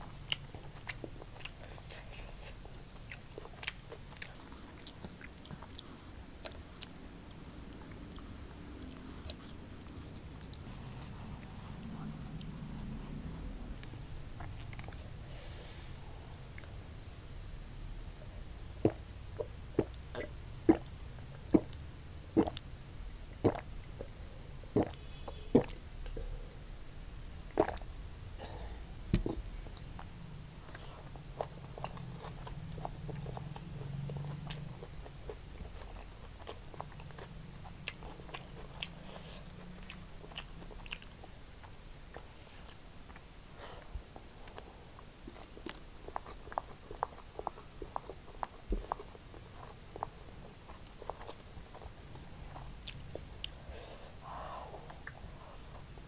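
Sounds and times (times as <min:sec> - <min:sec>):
wet chewing and lip smacks: 0:00.1 - 0:10.7, 0:13.7 - 0:15.2, 0:23.3 - 0:24.2, 0:29.1 - 0:43.3, 0:45.3 - 0:53.6, 0:54.8 - 0:55.9
swallowing gulps of juice: 0:23.4 - 0:24.0, 0:27.5 - 0:27.9.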